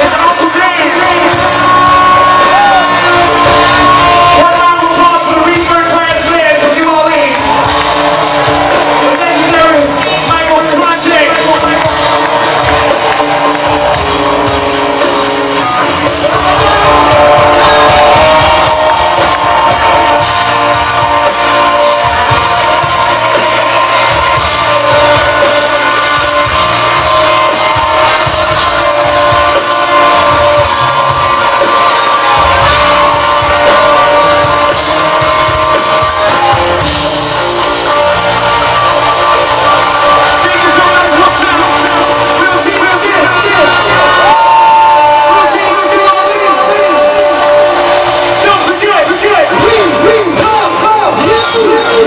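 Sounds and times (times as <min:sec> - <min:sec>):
live rock band playing: 0:00.0 - 0:52.0.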